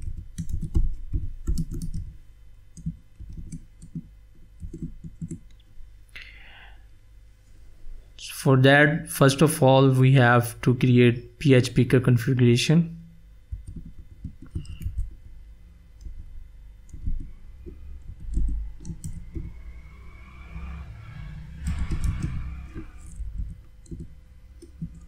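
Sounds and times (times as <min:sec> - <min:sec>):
computer keyboard typing: 0:00.0 - 0:02.2, 0:02.8 - 0:05.6, 0:13.5 - 0:15.4, 0:16.9 - 0:19.6, 0:21.5 - 0:25.0.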